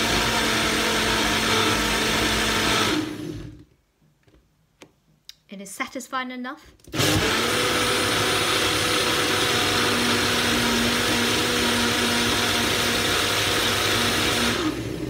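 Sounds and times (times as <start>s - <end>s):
blender running: 0.0s - 3.7s, 6.9s - 15.0s.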